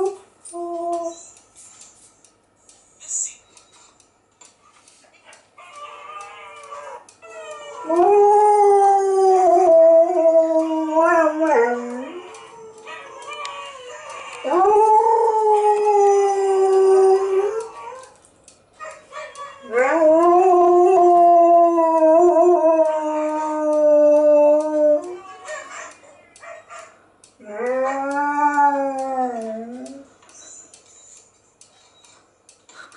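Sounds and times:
dog howling: 0:05.6 - 0:18.2, 0:18.8 - 0:30.1.

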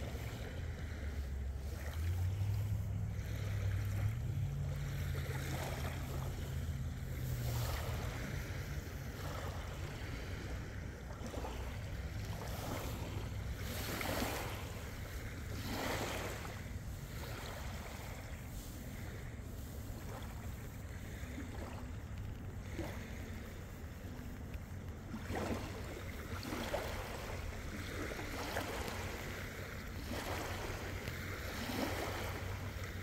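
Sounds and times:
low rumble: 0:00.0 - 0:26.3
waves lapping against shore: 0:00.0 - 0:33.0.

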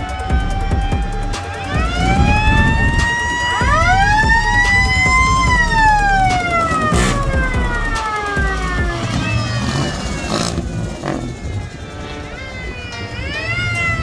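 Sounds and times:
car engines rumbling: 0:00.0 - 0:14.0
sirens wailing: 0:00.0 - 0:14.0.

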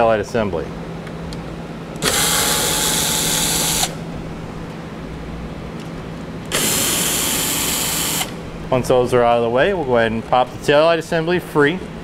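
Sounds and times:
cordless drill running: 0:02.0 - 0:04.1, 0:06.5 - 0:08.4.

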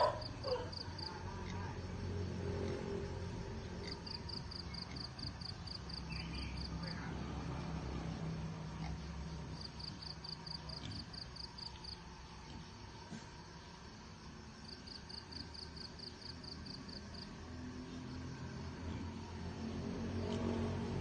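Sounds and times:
insect chirping: 0:00.0 - 0:21.0.

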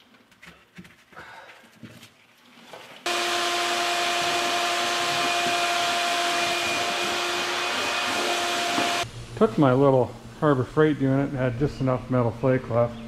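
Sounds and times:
shop vacuum motor whine: 0:03.1 - 0:09.1.

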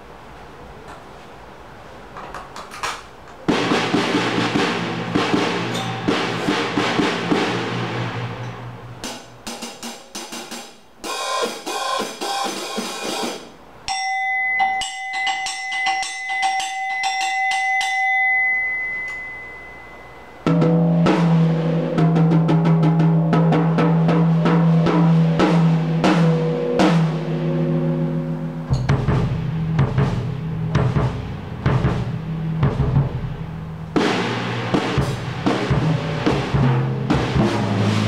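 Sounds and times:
drum kit playing: 0:03.4 - 0:19.2, 0:20.4 - 0:38.0
deep ringing low tone: 0:05.7 - 0:06.3, 0:15.7 - 0:33.9.

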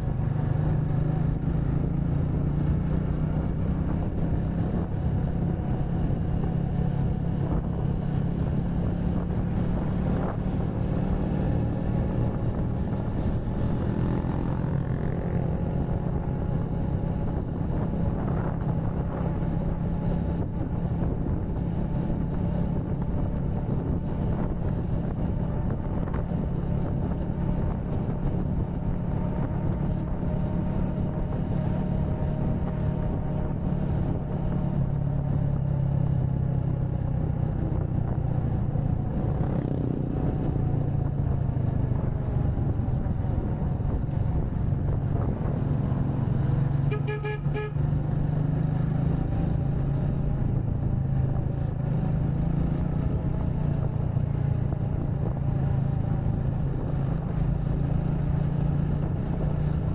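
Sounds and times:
motorcycle engine and road noise: 0:00.0 - 0:59.9
horn short beeps: 0:46.9 - 0:47.8.

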